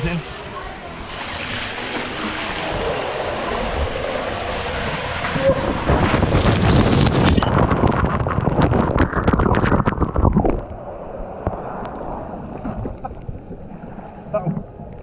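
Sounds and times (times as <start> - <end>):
body sliding down waterslide tube: 0.4 - 10.7.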